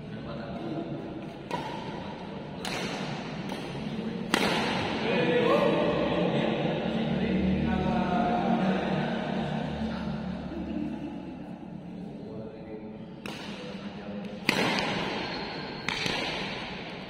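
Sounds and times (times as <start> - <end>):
voices: 0.0 - 16.1
shuttlecock hit by rackets: 1.3 - 5.0, 13.2 - 17.0.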